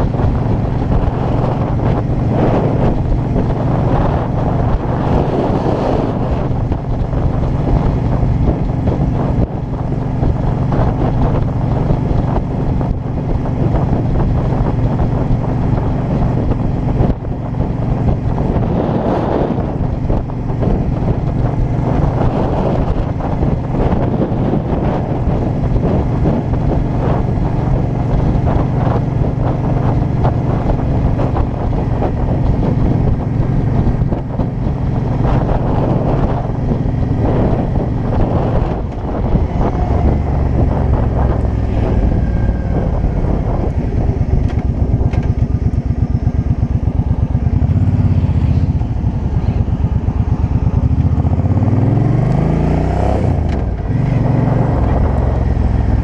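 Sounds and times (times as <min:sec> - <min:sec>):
motorcycle engine running: 0:00.0 - 0:56.0
wind buffeting microphone: 0:00.0 - 0:56.0.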